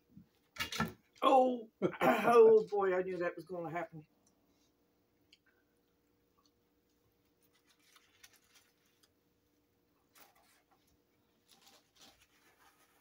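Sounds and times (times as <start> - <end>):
faint steady hum: 0.0 - 13.0
paper wrapper rustling: 7.3 - 9.3, 10.0 - 13.0.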